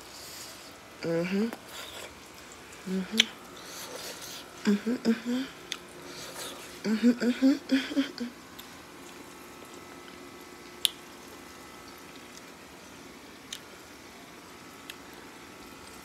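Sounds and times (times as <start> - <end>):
woman humming: 1.0 - 1.6, 2.8 - 3.4, 4.6 - 5.6, 6.4 - 8.4
frying grease sizzle: 8.4 - 16.0.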